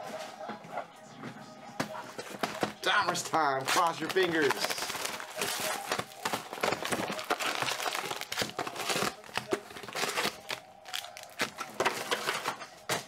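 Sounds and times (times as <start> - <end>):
foil packs rustling: 2.2 - 13.0
plastic wrap crinkling and tearing: 2.6 - 13.0.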